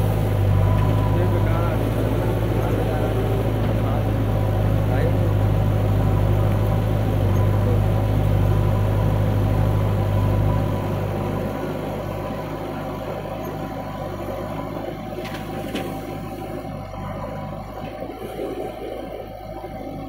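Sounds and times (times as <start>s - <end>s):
diesel engines running: 0.0s - 20.0s.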